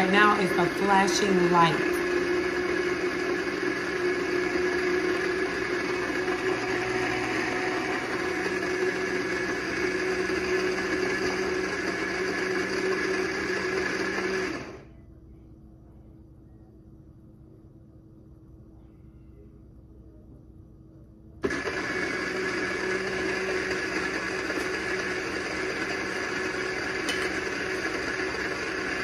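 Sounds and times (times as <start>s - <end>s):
blender motor running: 0.0s - 14.8s, 21.4s - 29.0s.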